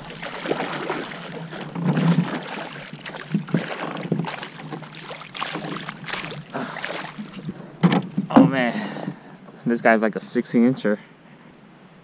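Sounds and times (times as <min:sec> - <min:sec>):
fish thrashing and splashing: 0:00.0 - 0:08.2.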